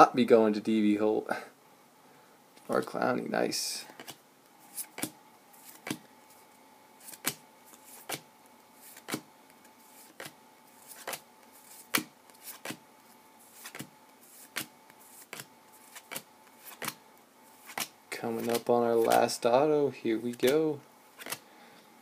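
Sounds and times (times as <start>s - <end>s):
cards flipping with light snap: 13.5s - 17.0s, 21.2s - 21.4s.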